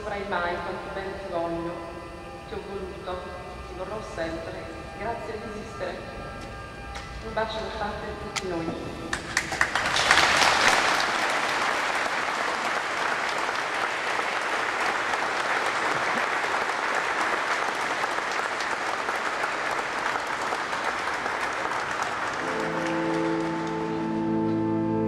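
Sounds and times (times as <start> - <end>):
congregation applauding: 9.1 - 25.0.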